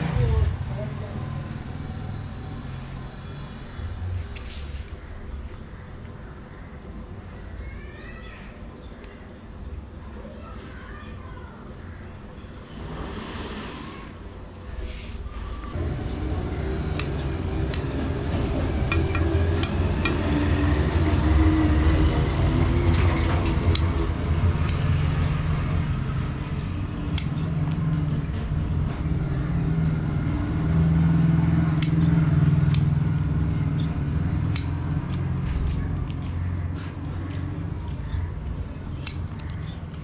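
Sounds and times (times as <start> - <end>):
shears snipping leather: 26.6 - 27.4, 31.7 - 33.0, 33.8 - 35.3.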